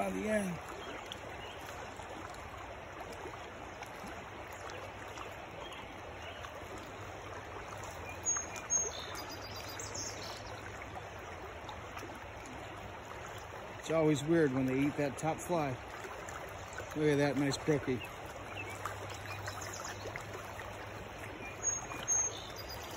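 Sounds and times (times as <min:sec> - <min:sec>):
stream rushing over rocks: 0:00.0 - 0:22.9.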